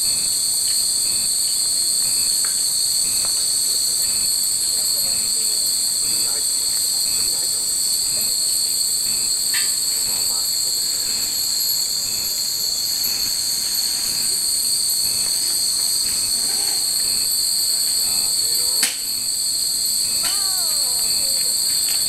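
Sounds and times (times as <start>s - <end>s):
steady high-pitched drone: 9.9s - 22.0s.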